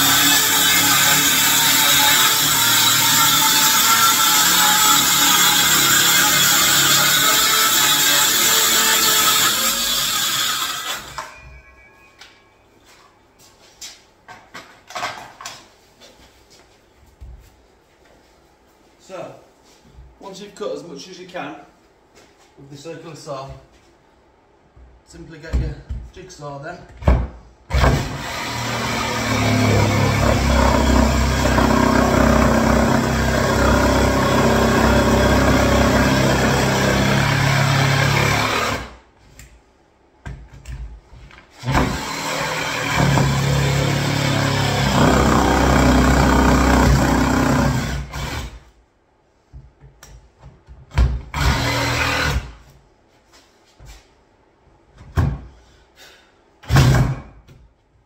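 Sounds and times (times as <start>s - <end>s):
jigsaw cutting worktop: 0.0s - 11.2s, 27.7s - 39.0s, 41.6s - 48.6s, 51.3s - 52.5s.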